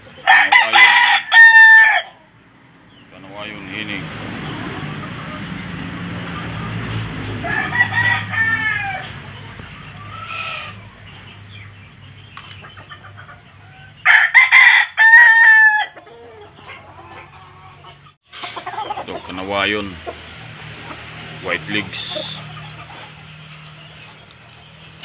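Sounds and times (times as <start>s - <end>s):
chicken calls: 0.0s - 25.0s
rooster crowing: 0.2s - 2.3s, 7.4s - 9.2s, 10.0s - 10.9s, 13.6s - 17.8s.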